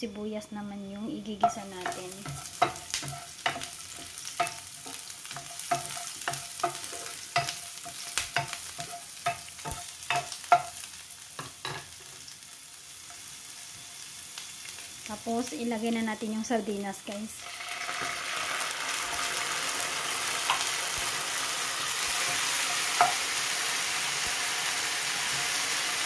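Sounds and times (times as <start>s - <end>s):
onions sizzling in oil: 0.0s - 26.0s
spatula scraping and tapping pan: 1.4s - 12.0s, 20.4s - 21.1s, 22.0s - 23.4s.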